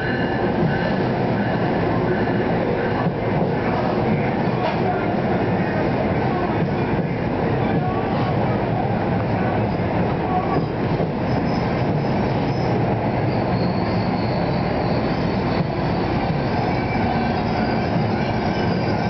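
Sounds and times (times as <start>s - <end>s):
train wheels rumbling on rails: 0.0s - 19.0s
high squeal of wheels and brakes: 11.2s - 19.0s.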